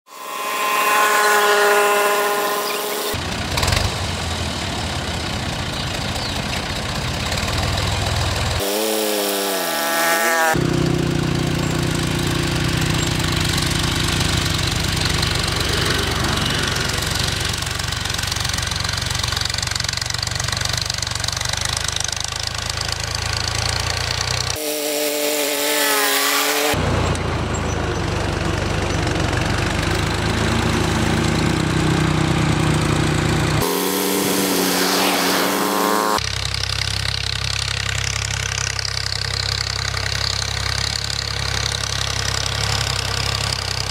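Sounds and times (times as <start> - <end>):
tractor diesel engine running: 0.1 - 43.9.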